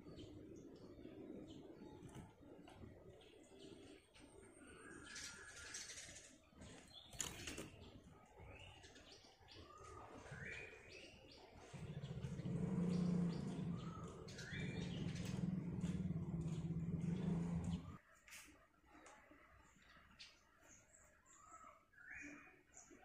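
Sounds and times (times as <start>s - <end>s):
wing flutters: 7.1s - 7.9s
low pulsing buzzing drone: 11.7s - 18.0s.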